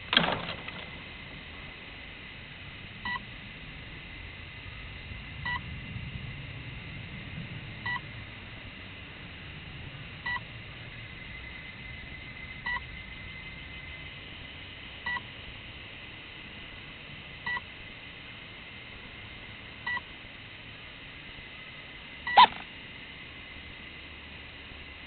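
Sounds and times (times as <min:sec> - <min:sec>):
faint hiss: 0:00.0 - 0:25.0
short electronic beeps: 0:22.3 - 0:22.6
thin high tone: 0:22.3 - 0:22.6.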